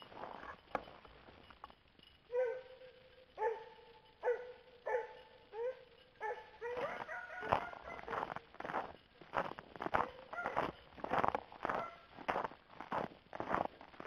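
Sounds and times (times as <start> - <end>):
footsteps crunching in snow: 0.0 - 1.8, 6.2 - 14.0
hound barking: 2.3 - 8.4, 9.9 - 10.8, 11.6 - 12.1.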